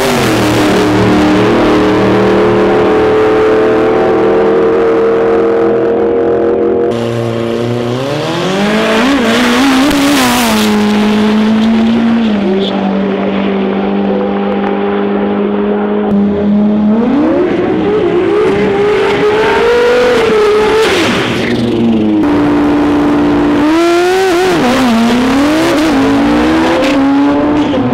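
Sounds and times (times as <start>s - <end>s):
drag racing engines at full throttle: 0.0s - 27.9s
engine revving up: 6.9s - 27.9s.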